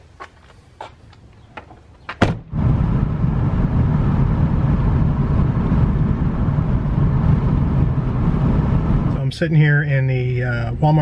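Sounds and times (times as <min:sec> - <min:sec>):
van door knocking shut: 0:02.1 - 0:02.5
van rumble from inside cabin: 0:02.2 - 0:11.0.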